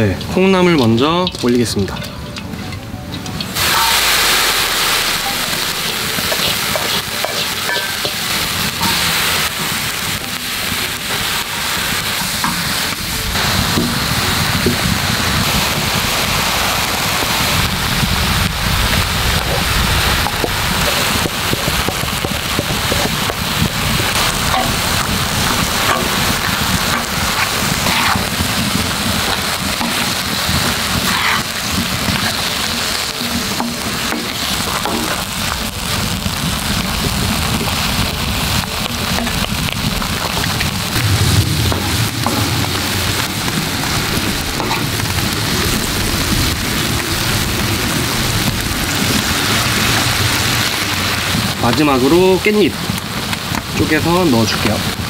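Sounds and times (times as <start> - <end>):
food sizzling on a griddle: 3.5 - 55.0
wooden spatula scraping iron: 24.4 - 35.2.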